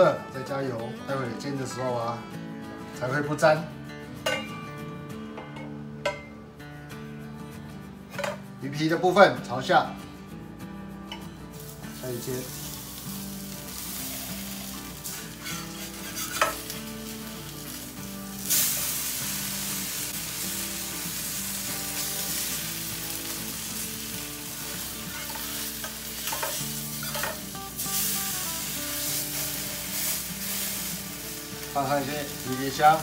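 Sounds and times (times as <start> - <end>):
fish sizzling in hot oil: 11.6 - 33.0.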